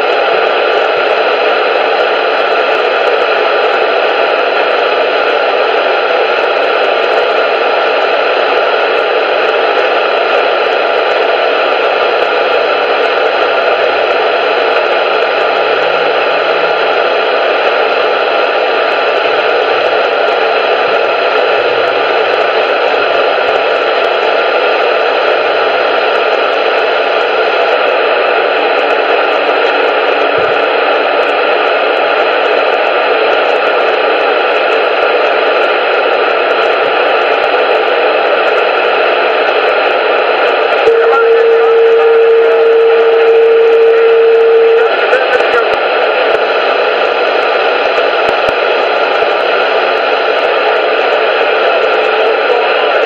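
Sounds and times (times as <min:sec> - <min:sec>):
loud static hiss: 0:00.0 - 0:53.0
steady mid-pitched tone: 0:40.7 - 0:49.4.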